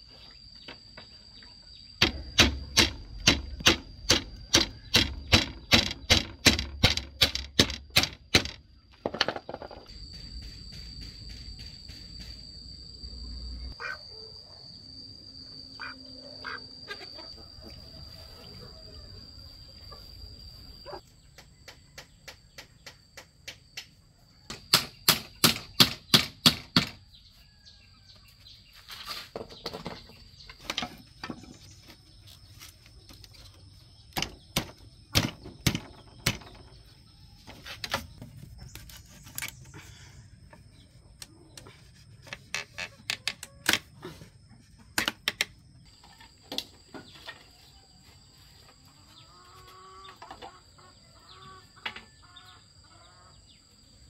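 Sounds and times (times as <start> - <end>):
sharp knocks on bamboo: 2.0 - 9.7, 34.1 - 36.6.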